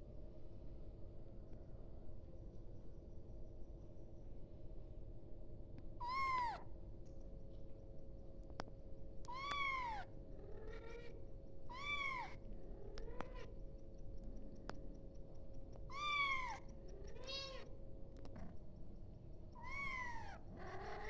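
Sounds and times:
kitten meowing: 6.0 - 6.6, 9.3 - 12.4, 15.9 - 17.7, 19.6 - 21.0.

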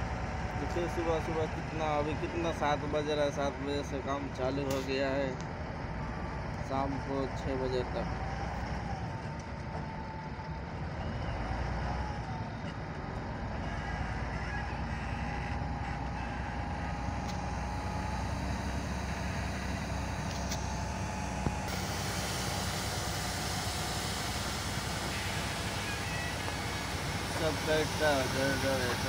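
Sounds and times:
diesel engine running: 0.0 - 29.0
thin wavering whine: 15.6 - 29.0.

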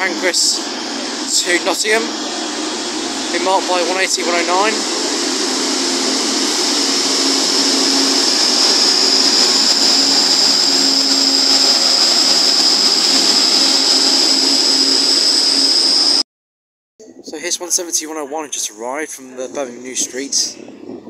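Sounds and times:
diesel train engine whining: 0.0 - 16.2.

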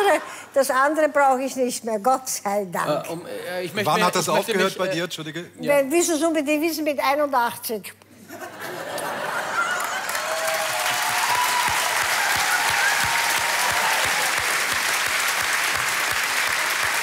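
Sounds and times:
audience applause: 9.2 - 17.0.

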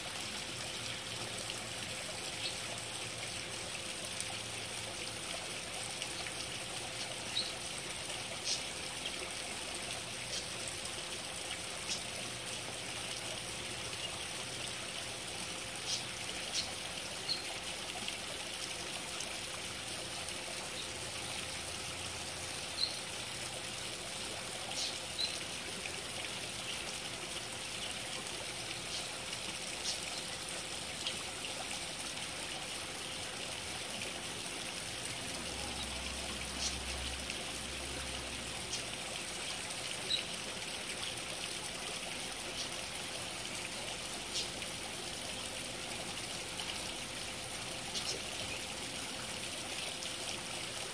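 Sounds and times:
waterfall splashing over rocks: 14.7 - 50.9.

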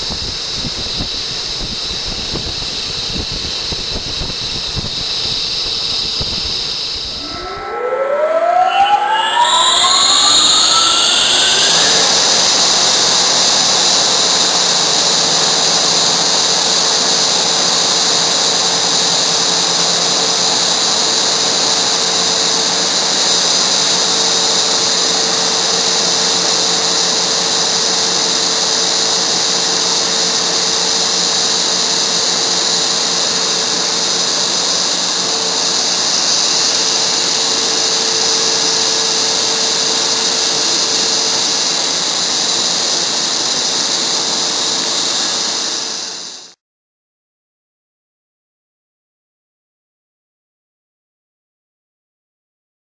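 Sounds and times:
water pump motor whining and humming: 0.0 - 46.4.

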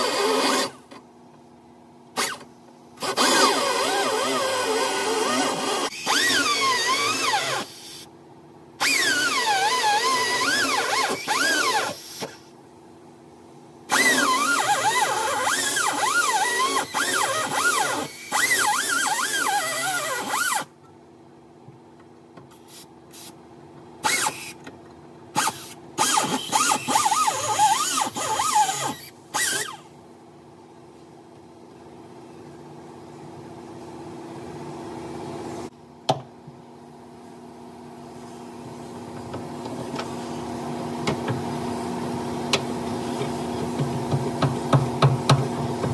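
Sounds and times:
air cutoff tool cutting steel: 3.0 - 8.0.

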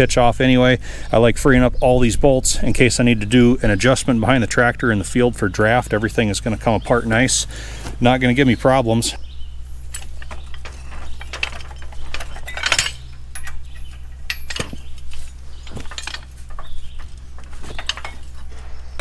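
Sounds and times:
metal parts clinking: 9.6 - 19.0.

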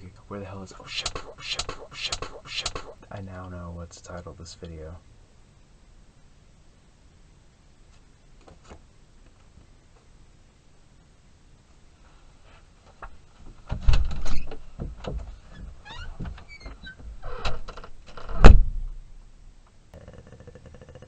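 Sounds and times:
faint steady hum: 0.0 - 21.0
knocks and thumps at a door: 13.5 - 17.2.

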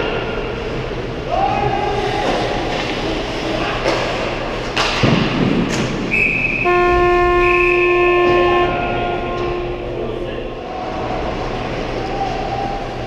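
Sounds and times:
referee's whistle: 6.1 - 9.8
arena horn: 6.6 - 10.6.

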